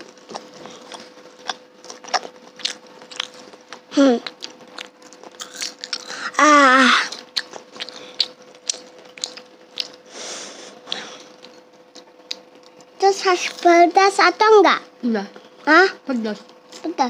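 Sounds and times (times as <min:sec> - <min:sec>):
chewing and crunching: 0:00.0 - 0:06.4, 0:07.0 - 0:10.2, 0:10.8 - 0:13.8.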